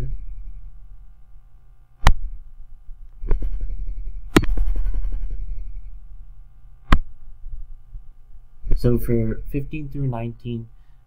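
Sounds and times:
low rumble: 2.3s - 9.8s.

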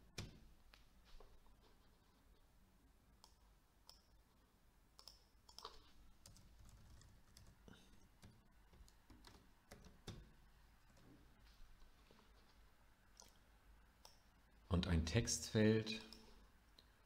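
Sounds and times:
mouse and keyboard clicks: 5.0s - 7.1s.

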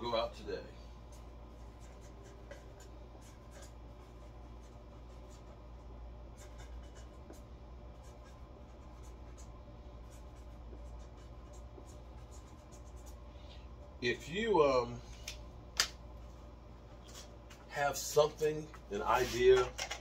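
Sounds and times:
steady low hum: 0.0s - 20.0s
faint scratching and rubbing: 18.1s - 19.7s.

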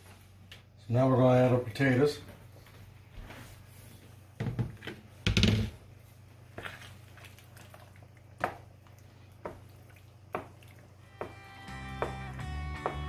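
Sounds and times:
utensil stirring in a pan: 5.9s - 13.0s.

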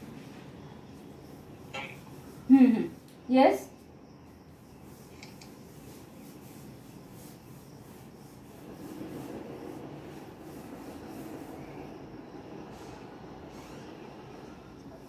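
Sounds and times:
scratchy rubbing and rustling: 4.5s - 12.0s.

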